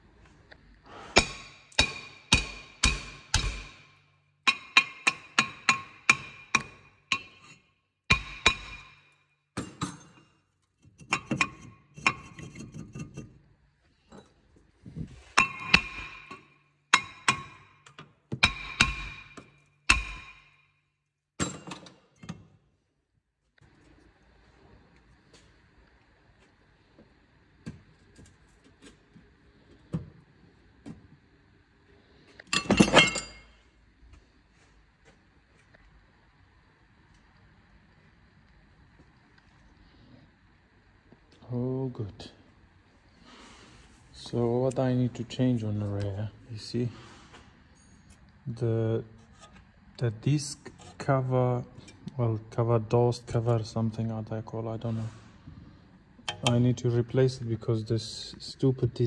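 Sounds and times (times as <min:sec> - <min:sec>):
metal clinking and rattling: 0:32.5 - 0:33.6.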